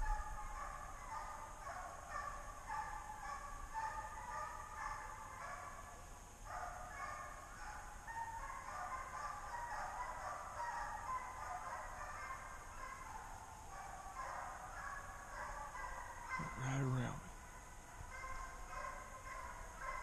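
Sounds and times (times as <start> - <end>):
hounds baying: 0.0 - 20.0.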